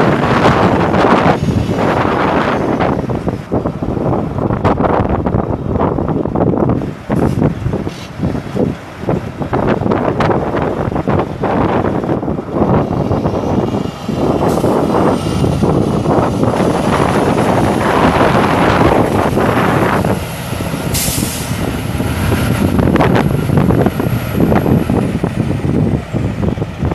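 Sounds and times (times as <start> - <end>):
diesel truck driving on gravel: 0.0 - 26.9
sharp air hiss: 20.9 - 21.6
high turbo whistle: 20.9 - 22.4.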